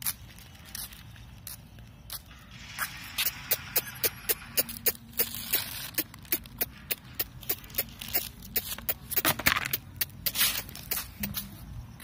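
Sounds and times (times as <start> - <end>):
footsteps slapping on concrete: 3.2 - 11.6.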